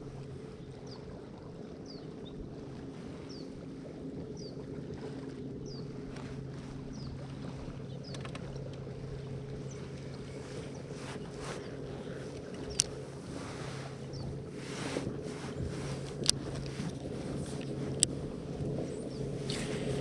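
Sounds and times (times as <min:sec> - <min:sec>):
low hum: 0:00.0 - 0:20.0
wind on water: 0:00.0 - 0:20.0.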